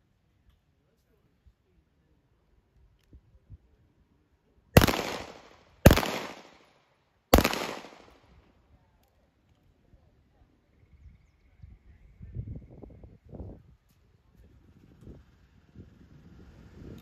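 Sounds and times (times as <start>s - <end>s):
handgun shots with echo: 4.8s - 6.7s, 7.4s - 8.2s.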